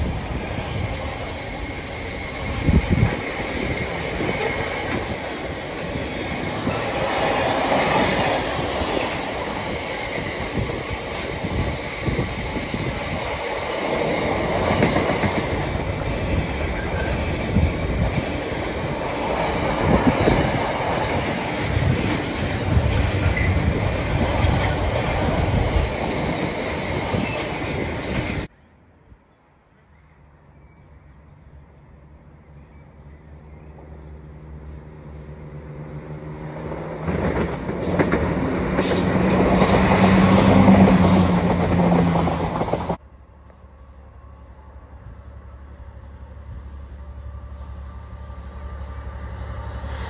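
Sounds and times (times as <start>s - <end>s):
train rumble: 0.0s - 28.5s, 31.0s - 50.0s
train wheels clattering over rails: 0.0s - 28.5s, 36.5s - 43.0s.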